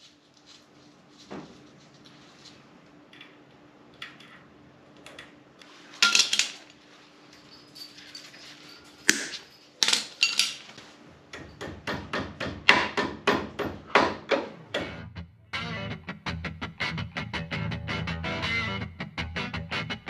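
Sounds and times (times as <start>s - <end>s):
hammer tapping on metal: 11.3s - 15.0s.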